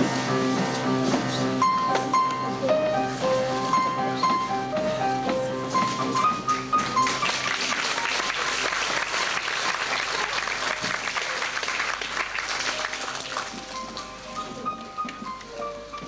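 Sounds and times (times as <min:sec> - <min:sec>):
audience applauding: 0:06.4 - 0:14.4.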